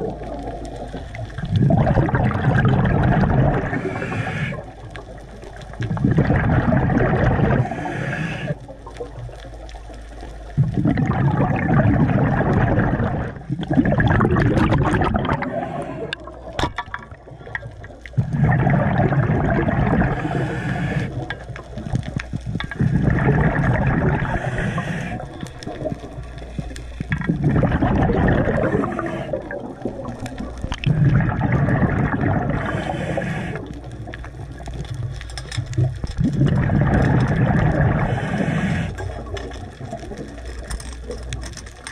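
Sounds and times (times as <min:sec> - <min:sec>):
gurgling exhaled bubbles: 0:00.0 - 0:41.9
diver breathing through regulator: 0:03.5 - 0:04.8, 0:07.4 - 0:08.7, 0:14.6 - 0:16.3, 0:18.2 - 0:21.4, 0:22.8 - 0:29.7, 0:30.9 - 0:33.8, 0:36.6 - 0:39.3.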